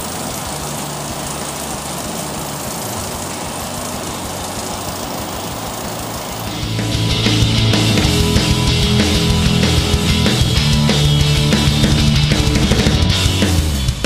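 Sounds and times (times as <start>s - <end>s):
toy wheels rolling on belt: 0.0s - 8.4s
treadmill motor and belt: 0.0s - 14.0s.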